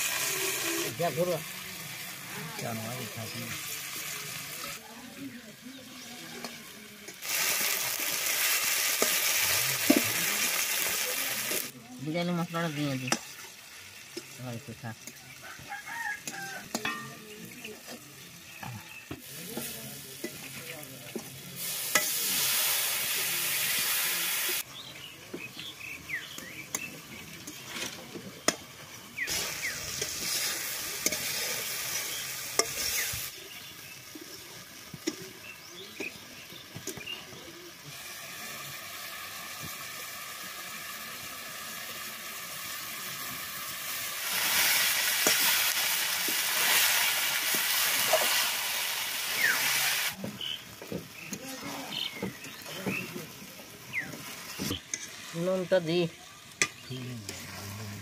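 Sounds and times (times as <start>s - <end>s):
food sizzling in a pan: 0.0s - 58.0s
metal spatula scraping a pan: 29.3s - 33.2s, 54.3s - 55.3s.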